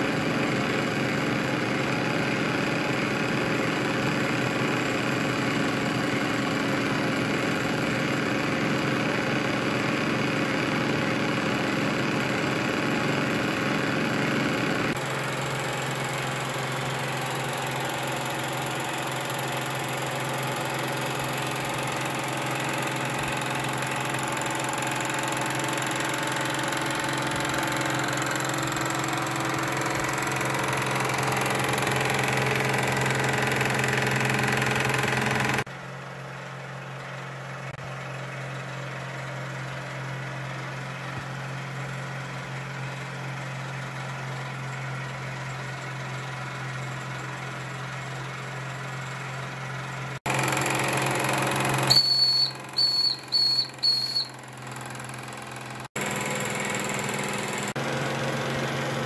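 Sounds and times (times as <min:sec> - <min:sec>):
toy steam engine running: 0:14.9 - 0:35.7, 0:50.2 - 0:57.8.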